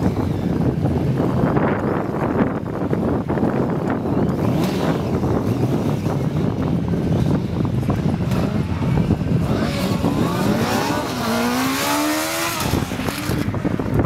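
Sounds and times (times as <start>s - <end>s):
wind rumbling on microphone: 0.0s - 14.0s
motorcycle engine revving: 4.0s - 14.0s.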